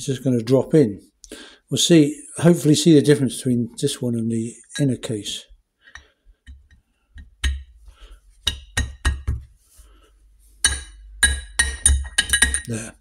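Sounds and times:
metallic clinks: 10.7 - 12.9.

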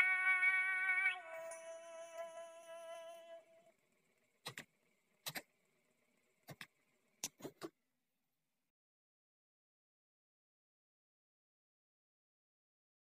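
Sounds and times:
synthesized cat-meow singing: 0.0 - 3.6.

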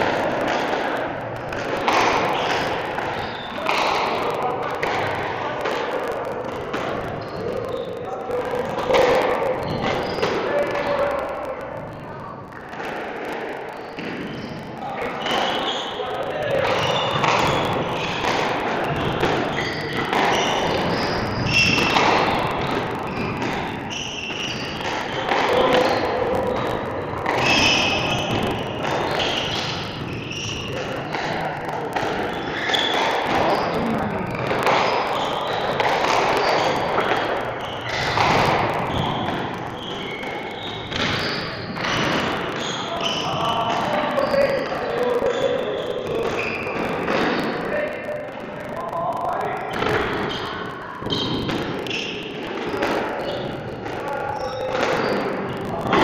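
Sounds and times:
rackets striking ball: 0.0 - 7.7, 16.5 - 44.0
people talking: 0.0 - 56.0.

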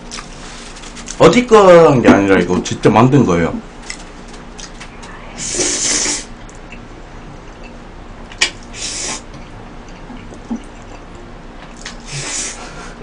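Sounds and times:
man slurping spaghetti: 5.4 - 6.3, 8.7 - 9.3, 11.8 - 12.8.

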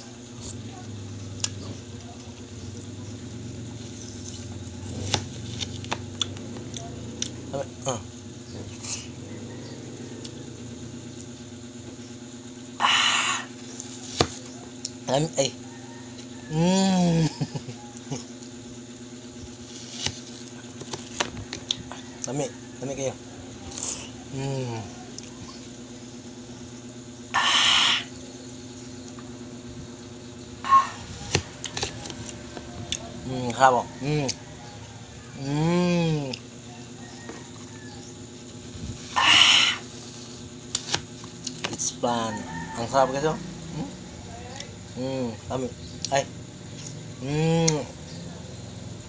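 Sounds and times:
low motor hum: 0.0 - 49.0
person laughing squealing: 16.5 - 18.3, 27.3 - 28.1, 30.6 - 31.1, 39.1 - 39.9.

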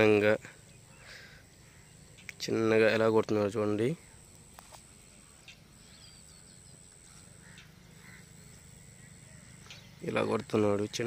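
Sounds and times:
faint bird chirps: 0.0 - 2.6, 5.0 - 11.0
low steady hum: 0.0 - 11.0
thin high whine: 0.0 - 11.0
faint ticks: 1.5 - 2.4, 4.3 - 5.7, 6.9 - 7.8, 9.6 - 10.6.

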